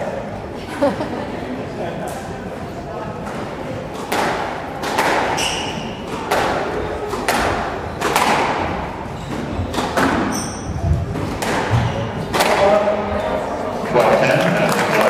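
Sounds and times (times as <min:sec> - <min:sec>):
squash ball striking rackets: 0:03.3 - 0:13.0
ball hitting walls: 0:04.0 - 0:12.8
shoes squeaking on wooden floor: 0:05.3 - 0:07.0, 0:09.0 - 0:11.2.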